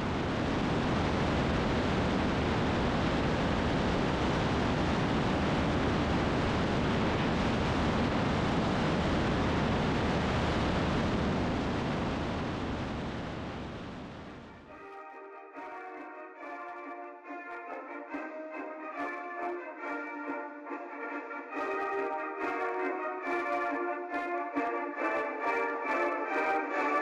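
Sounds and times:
light aircraft engine drone: 0:00.0 - 0:14.7.

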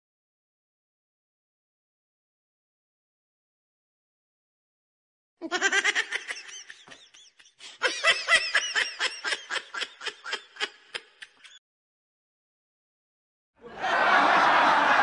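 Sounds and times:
high-pitched giggling: 0:05.4 - 0:11.6.

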